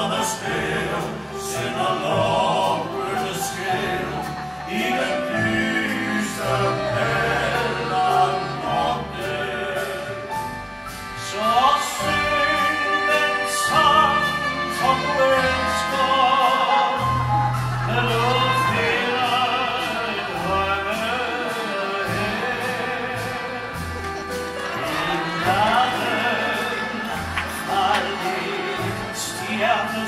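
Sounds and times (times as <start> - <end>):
trumpet: 0.0 - 30.0
upright double bass: 0.0 - 30.0
vocal group singing in harmony: 0.0 - 30.0
drums keeping a steady beat: 0.1 - 30.0.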